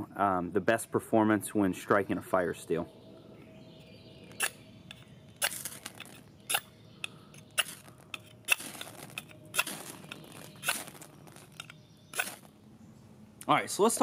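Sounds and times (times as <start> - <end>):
knife scraping a fire steel: 4.3 - 6.7, 7.3 - 12.5.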